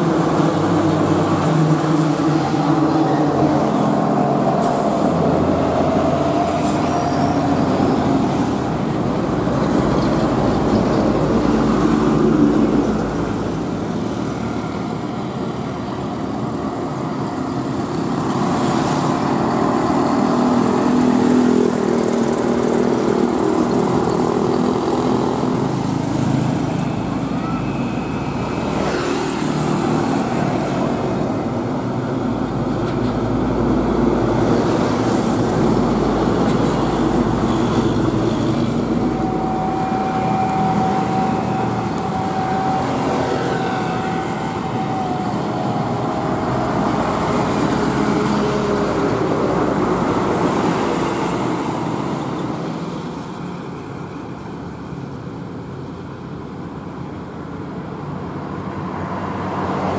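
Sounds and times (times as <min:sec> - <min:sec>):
heavy diesel trucks passing: 0:00.0 - 0:59.9
road traffic: 0:00.0 - 0:59.9
steady whine: 0:36.5 - 0:47.8.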